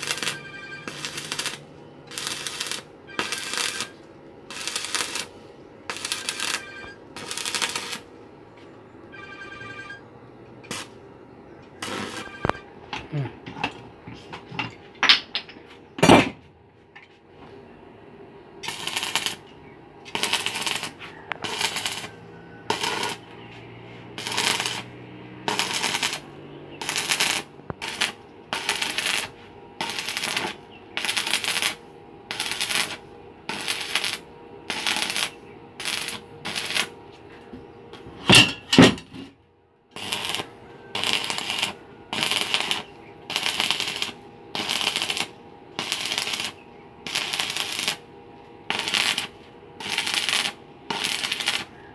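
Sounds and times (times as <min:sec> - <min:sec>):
welding arc crackling: 0:00.0 - 0:08.2, 0:10.6 - 0:11.0, 0:11.8 - 0:12.6, 0:18.6 - 0:37.0, 0:39.9 - 0:51.8.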